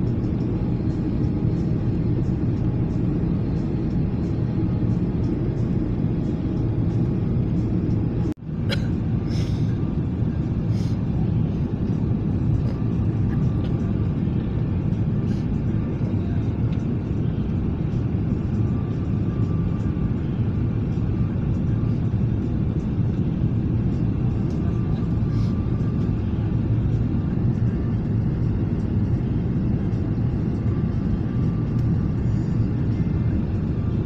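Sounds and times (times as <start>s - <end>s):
jet engines rumbling: 0.0s - 34.0s
rushing air: 8.0s - 13.3s, 25.1s - 27.2s.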